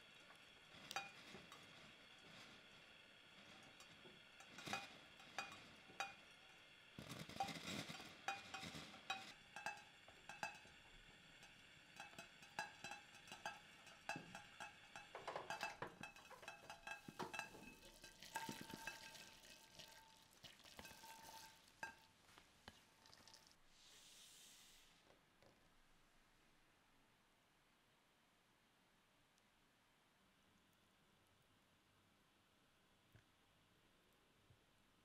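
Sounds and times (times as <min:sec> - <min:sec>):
spatula scraping glass bowl: 0:00.2 - 0:10.8, 0:11.4 - 0:22.0
taps and clinks on glass: 0:07.1 - 0:10.8, 0:12.0 - 0:20.0
hiss: 0:23.7 - 0:25.0.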